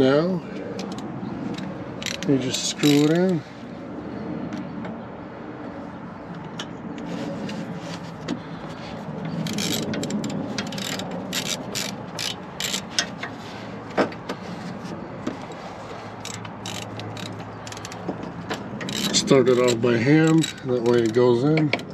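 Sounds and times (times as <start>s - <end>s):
socket ratchet clicking: 0.8s - 3.3s, 9.3s - 13.3s, 16.2s - 21.9s.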